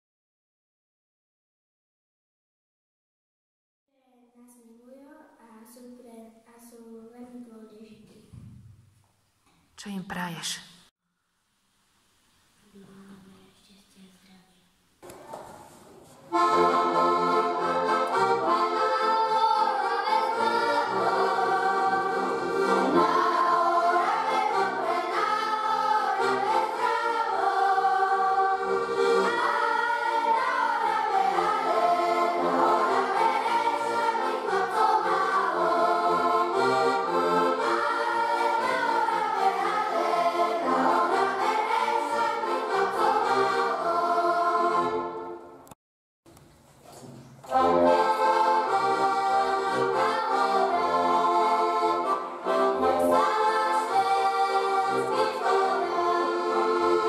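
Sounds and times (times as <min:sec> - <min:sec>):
children's choir singing: 0:16.3 - 0:45.6, 0:47.5 - 0:57.0
button accordions: 0:16.3 - 0:45.7, 0:47.5 - 0:57.0.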